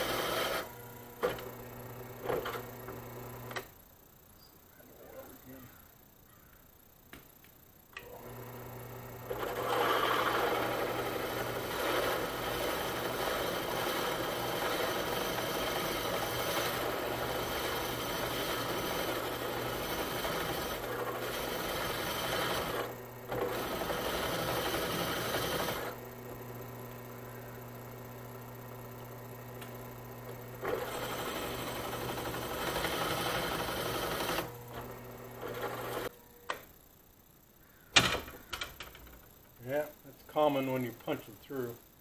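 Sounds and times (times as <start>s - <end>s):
drill press motor humming: 0.0s - 4.2s, 7.1s - 39.4s
drill bit cutting steel: 9.3s - 26.0s, 30.6s - 34.5s.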